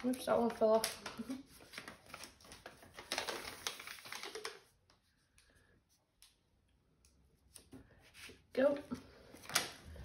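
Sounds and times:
plastic film crackling and rustling: 0.0s - 4.9s, 9.2s - 10.0s.

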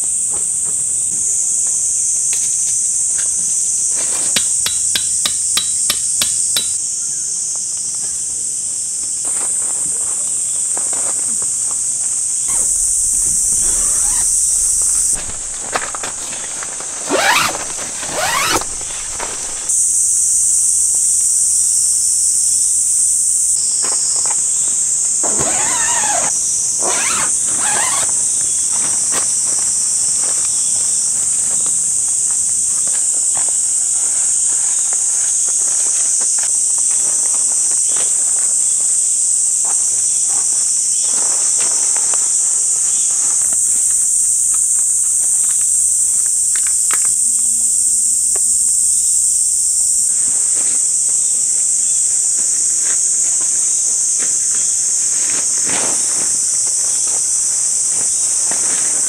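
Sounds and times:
high-pitched insect chorus: 0.0s - 59.0s
footsteps on leaf litter: 9.4s - 19.8s
tent fabric rustling: 12.4s - 19.8s, 25.3s - 31.5s.

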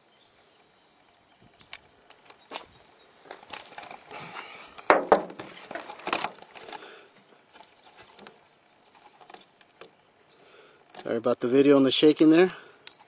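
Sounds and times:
camera handling rustling and knocking: 2.1s - 4.1s, 4.8s - 6.8s
quiet ticks: 12.0s - 13.0s.

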